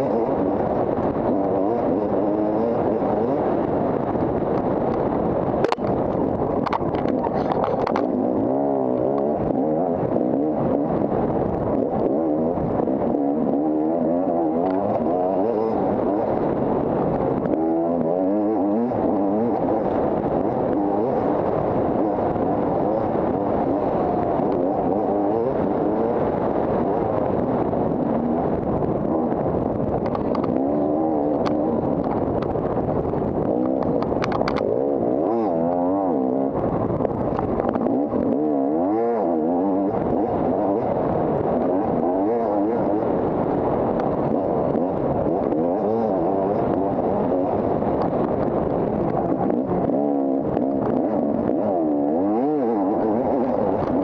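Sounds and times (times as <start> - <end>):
dirt bike engine revving: 0.0 - 3.8, 6.7 - 29.4, 37.6 - 54.0
sharp clacks: 5.6 - 8.1, 33.6 - 34.7.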